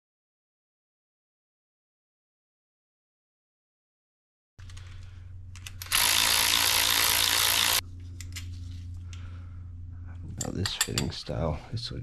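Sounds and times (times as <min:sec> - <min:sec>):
steady low hum: 0:04.6 - 0:12.0
power ratchet running: 0:05.6 - 0:07.8.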